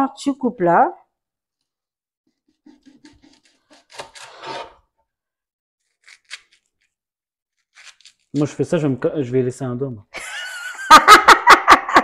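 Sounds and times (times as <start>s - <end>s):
knife slicing on cutting board: 2.3s - 4.9s.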